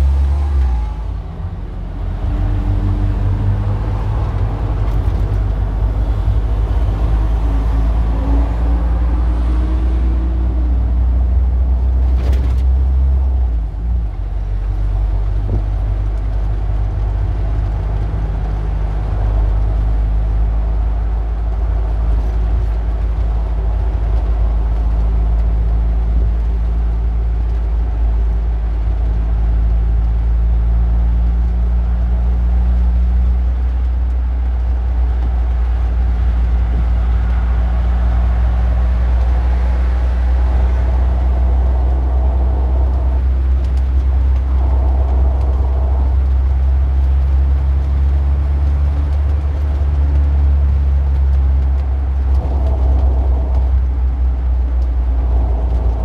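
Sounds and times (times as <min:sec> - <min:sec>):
car engine running: 0:31.9 - 0:56.0.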